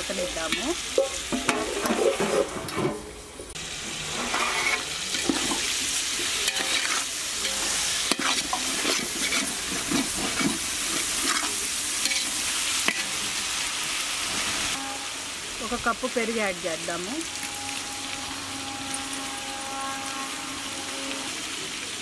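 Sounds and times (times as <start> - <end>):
meat sizzling in a pot: 0.0 - 22.0
metal spatula scraping a pot: 0.5 - 3.0, 4.0 - 13.2, 17.4 - 21.5.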